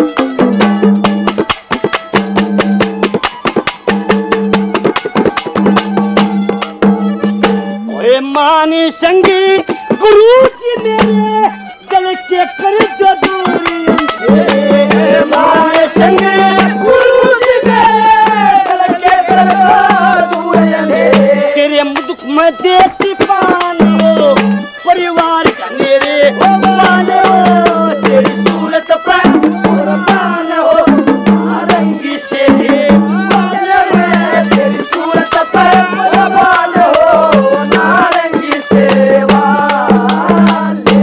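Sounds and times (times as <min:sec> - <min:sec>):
fast hand drum strokes: 0:00.0 - 0:41.0.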